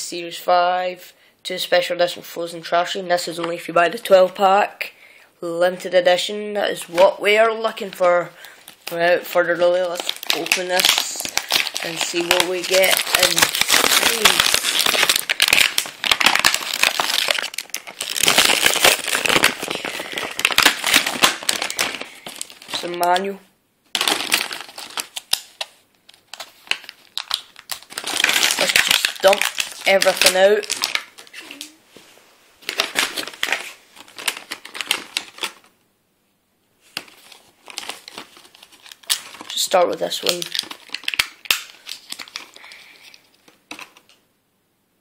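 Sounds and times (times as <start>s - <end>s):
plastic packaging crinkling: 7.3s - 31.8s, 32.6s - 35.7s, 36.8s - 44.2s.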